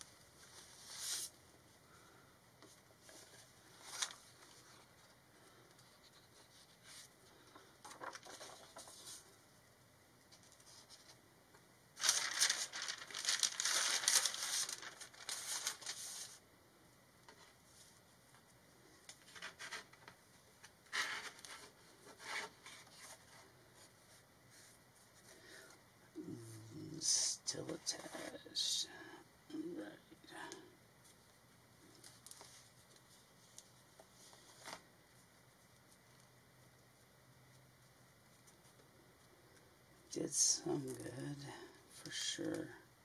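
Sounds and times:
paper rustling and sliding: 0:00.4 - 0:01.4, 0:02.6 - 0:05.1, 0:05.8 - 0:09.3, 0:12.0 - 0:16.4, 0:19.2 - 0:20.2, 0:20.9 - 0:25.6
hands rubbing paper: 0:12.0 - 0:16.4.

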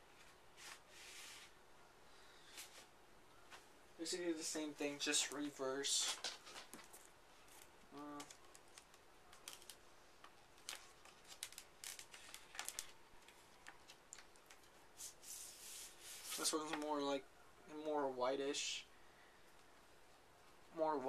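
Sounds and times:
paper sleeve rustling: 0:10.6 - 0:16.8.

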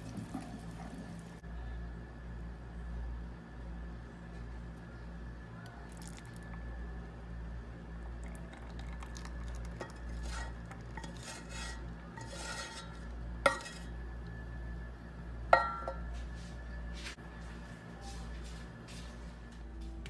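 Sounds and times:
wooden spoon scraping saucepan: 0:09.8 - 0:13.9.

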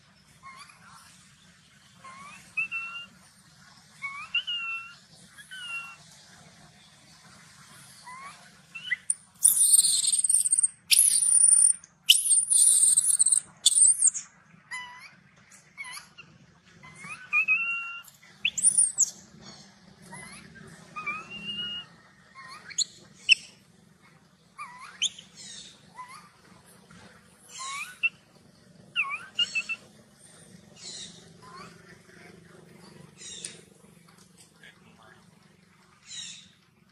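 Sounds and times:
macaque shrill screams: 0:08.8 - 0:15.1, 0:17.0 - 0:19.1.

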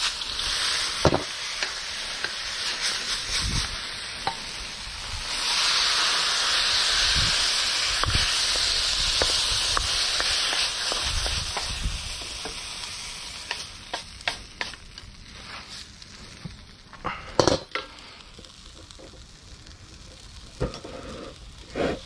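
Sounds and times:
stir-fry sizzling in a wok: 0:00.0 - 0:16.8, 0:17.6 - 0:22.0
wooden spatula scraping a pan: 0:20.6 - 0:22.0.

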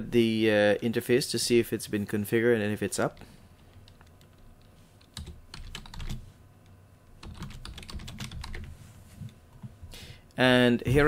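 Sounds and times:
computer keyboard typing: 0:03.6 - 0:06.2, 0:07.2 - 0:08.7.

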